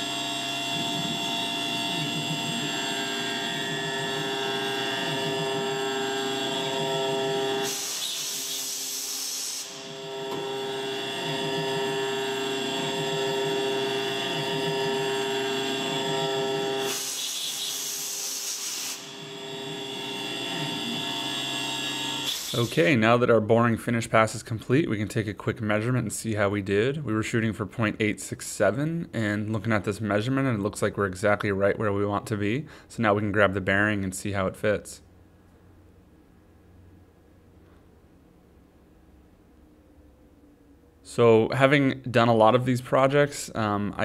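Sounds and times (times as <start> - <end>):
milling machine whine: 0.0 - 22.8.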